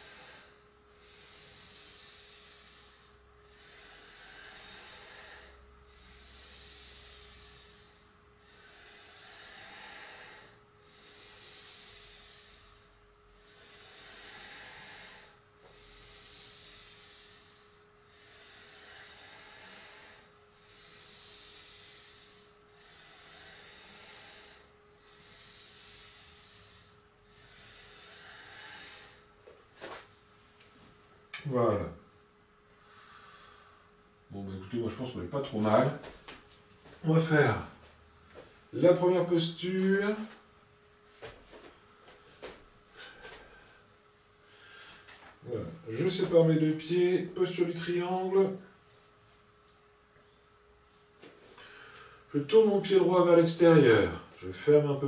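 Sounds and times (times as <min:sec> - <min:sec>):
person breathing slowly: 0:00.0 - 0:30.1, 0:32.7 - 0:34.0, 0:41.2 - 0:46.3, 0:51.2 - 0:52.3
faint steady hum: 0:00.0 - 0:55.0.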